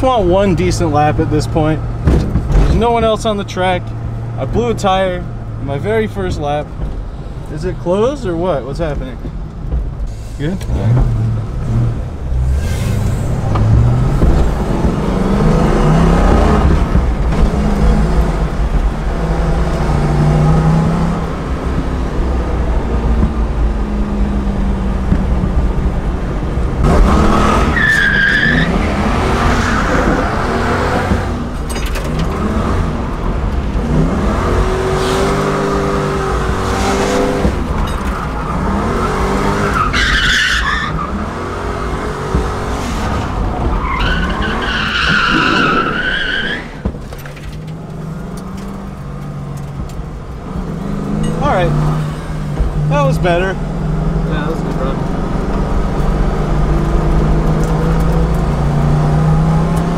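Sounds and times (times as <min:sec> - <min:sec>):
car engine revving: 0:00.0 - 0:59.9
tyres squealing: 0:27.6 - 0:31.0, 0:36.5 - 0:42.3, 0:43.6 - 0:46.8.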